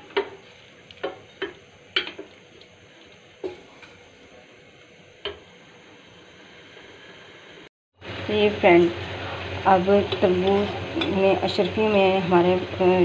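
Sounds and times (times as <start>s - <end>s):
wooden spoon stirring in saucepan: 0.0s - 5.4s.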